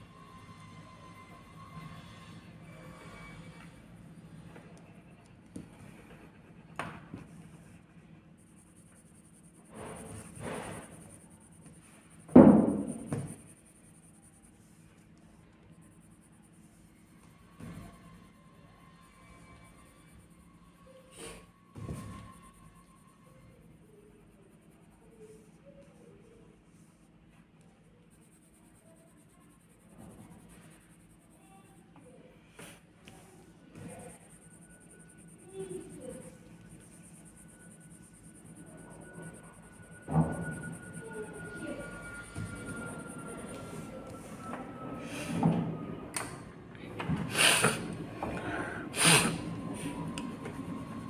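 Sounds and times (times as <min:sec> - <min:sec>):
steady low hum: 0:00.0 - 0:51.0
pencil scratching on paper: 0:28.0 - 0:31.8.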